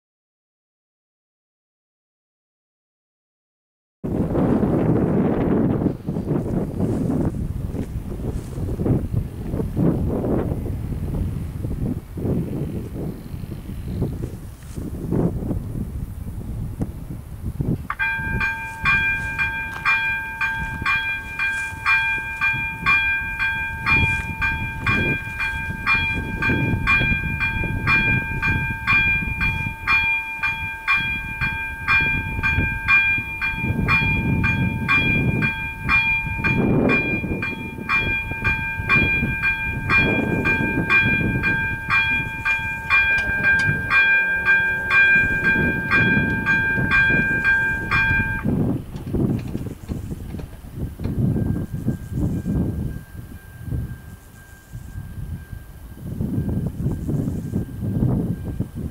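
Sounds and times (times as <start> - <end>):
level crossing warning bell: 17.9 - 48.9, 50.8 - 58.9.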